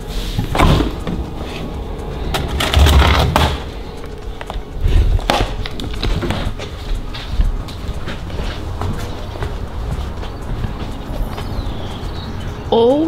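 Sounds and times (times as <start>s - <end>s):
refrigerator door opening and shutting: 0.3s - 3.8s.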